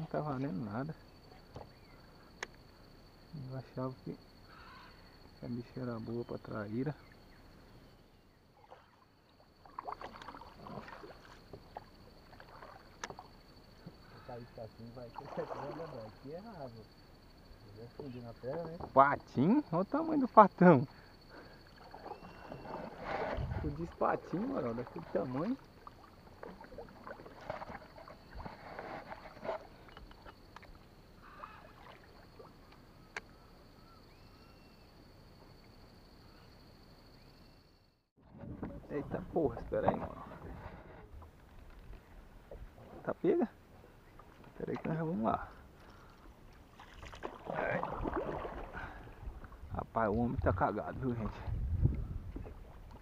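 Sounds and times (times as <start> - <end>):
paddle water splashing and dripping: 8.5 - 14.2, 15.1 - 16.3, 20.8 - 33.4, 43.6 - 50.2, 51.1 - 53.0.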